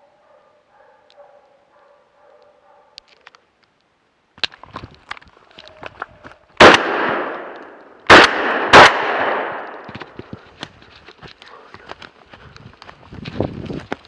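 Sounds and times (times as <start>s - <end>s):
gunshots echoing: 6.6s - 10.0s.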